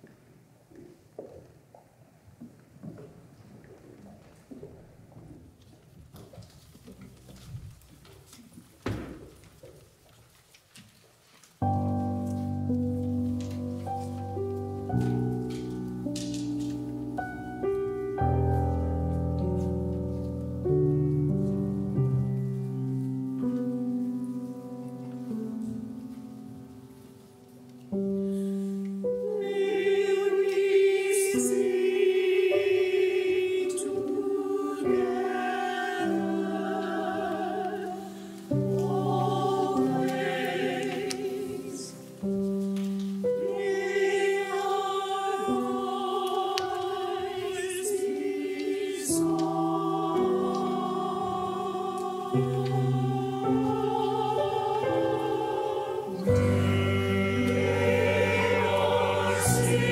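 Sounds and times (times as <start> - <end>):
mixed choir singing: 29.0 - 42.4, 43.2 - 59.9.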